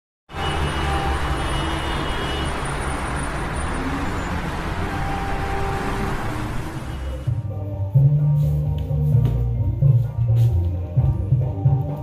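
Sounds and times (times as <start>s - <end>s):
city traffic rumble: 0.3s - 12.0s.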